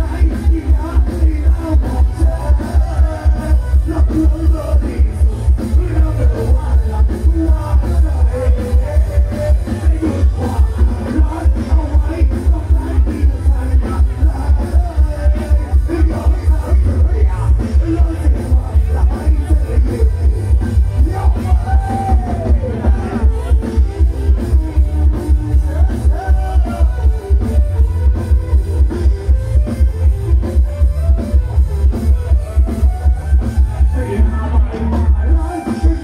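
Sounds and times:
person singing: 0:00.0 - 0:27.5
heavy bass beat: 0:00.0 - 0:36.0
live band playing dance music: 0:00.0 - 0:36.0.

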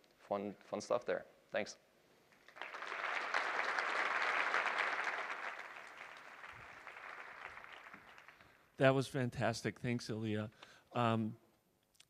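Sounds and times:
audience applauding: 0:02.4 - 0:08.6.

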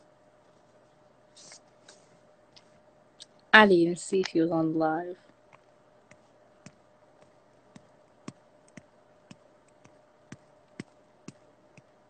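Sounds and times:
faint steady hum: 0:00.0 - 0:12.0
faint irregular clicks: 0:05.2 - 0:12.0.

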